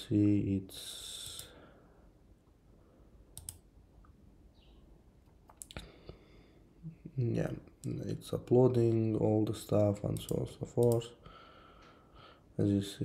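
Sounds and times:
computer mouse clicks: 3.3s - 4.2s, 5.2s - 5.9s, 10.1s - 11.1s
breath: 5.8s - 6.7s, 11.2s - 12.5s.

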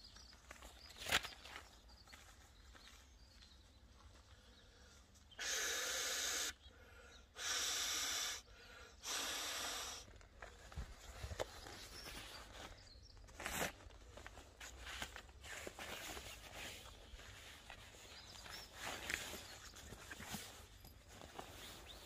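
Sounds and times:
person blowing into mat valve: 5.4s - 6.6s, 7.4s - 10.1s.

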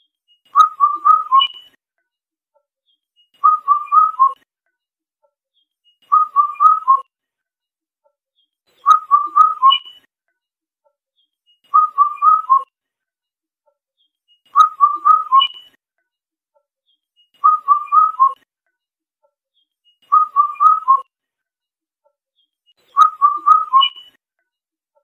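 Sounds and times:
cuckoo calling: 0.5s - 1.7s, 3.4s - 4.4s, 6.1s - 7.0s, 8.8s - 10.0s, 11.7s - 12.6s, 14.6s - 15.7s, 17.4s - 18.4s, 20.1s - 21.0s, 22.9s - 24.2s.

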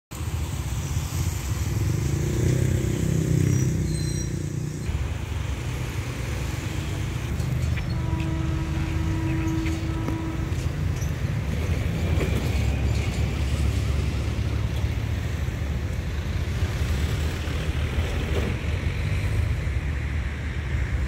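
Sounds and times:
low engine rumble: 4.8s - 21.0s.

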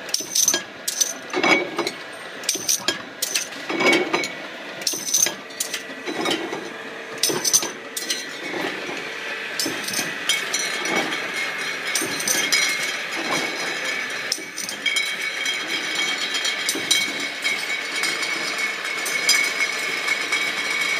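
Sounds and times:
machine clicks and knocks: 0.1s - 6.6s, 7.2s - 8.7s, 9.6s - 11.2s, 11.9s - 13.6s, 16.6s - 18.4s
mechanical whine: 0.1s - 20.9s
glass bottles clinking: 11.9s - 19.8s.

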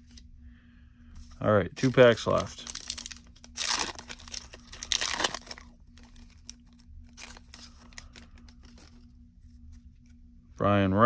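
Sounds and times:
wrapper crinkling: 1.8s - 9.0s
wrapper ripping: 2.3s - 8.2s.

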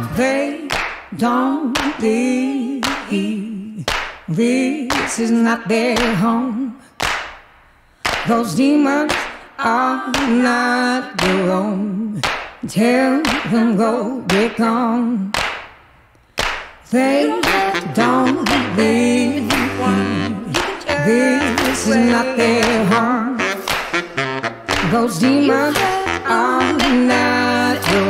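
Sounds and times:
hand claps keeping a beat: 0.7s - 1.2s, 1.8s - 2.1s, 2.8s - 3.2s, 3.8s - 4.3s, 4.9s - 5.2s, 6.0s - 6.2s, 7.0s - 9.5s, 10.1s - 10.5s, 11.2s - 11.5s, 12.2s - 12.6s, 13.2s - 13.7s, 14.3s - 14.7s, 15.4s - 16.8s, 17.4s - 23.0s, 23.6s - 28.0s
person singing: 16.9s - 28.0s.

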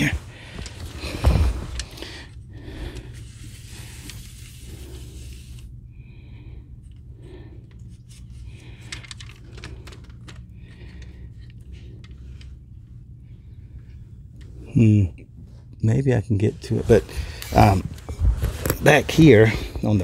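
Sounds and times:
handling clicks and rustles: 0.0s - 2.3s, 16.7s - 20.0s.

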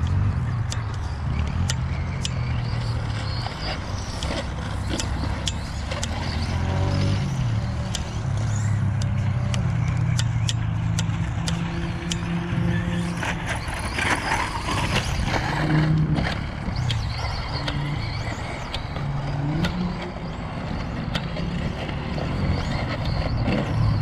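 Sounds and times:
rc truck motors rumbling: 0.0s - 24.0s
sharp clicks and knocks: 7.8s - 12.6s.

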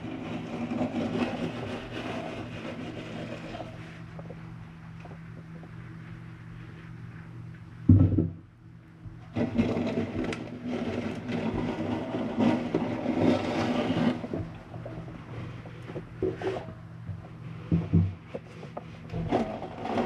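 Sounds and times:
scraping and rustling in metal box: 0.0s - 4.0s, 9.3s - 16.8s, 17.4s - 20.0s
steady low hum: 0.0s - 20.0s.

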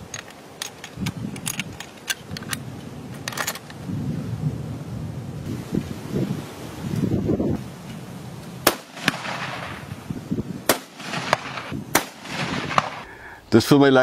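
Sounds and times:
loud rifle shots: 8.6s - 9.9s, 10.6s - 13.0s.

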